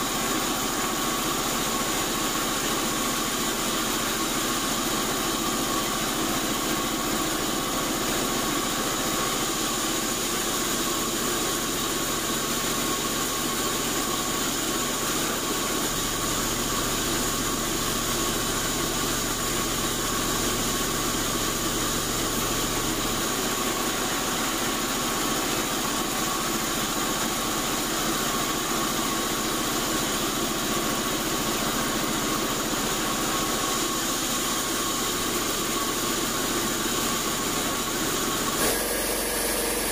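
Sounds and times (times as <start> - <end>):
band saw mill droning: 38.6 - 39.9.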